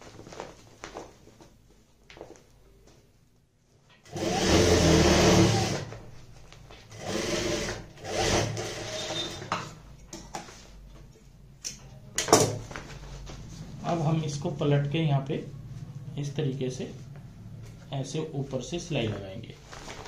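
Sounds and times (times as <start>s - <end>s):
sewing machine stitching: 4.0s - 5.9s, 6.9s - 9.5s.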